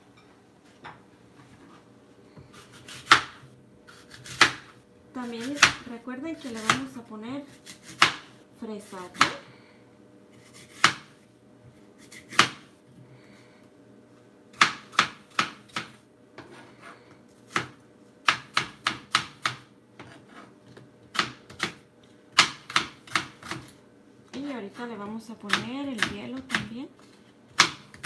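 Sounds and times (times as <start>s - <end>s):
knife chopping on plastic board: 4.0s - 4.7s, 5.4s - 5.9s, 7.6s - 8.3s, 10.7s - 11.1s, 14.6s - 16.0s, 17.5s - 20.2s, 21.0s - 23.7s, 27.5s - 28.0s.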